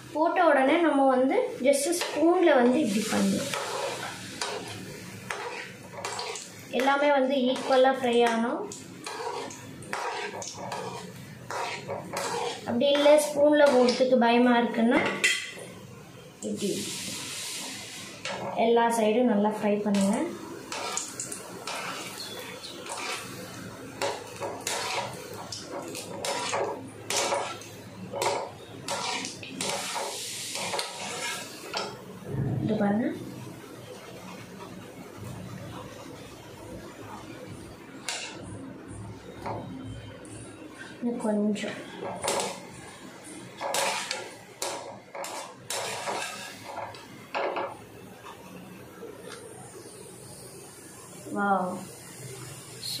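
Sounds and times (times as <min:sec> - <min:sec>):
oil sizzling: 0:00.0 - 0:53.0
strainer spoon scraping pan: 0:02.9 - 0:06.5, 0:09.0 - 0:14.0, 0:20.7 - 0:23.4, 0:24.0 - 0:31.6, 0:43.6 - 0:44.3, 0:45.1 - 0:47.0
skimmer scraping metal pan: 0:09.0 - 0:14.0.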